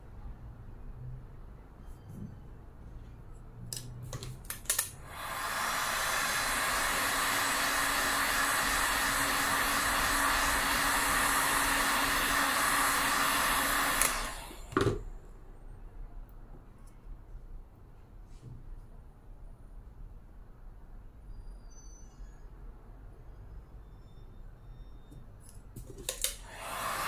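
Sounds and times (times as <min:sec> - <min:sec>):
hot-air dryer blowing: 0:05.0 - 0:15.0, 0:26.1 - 0:27.0.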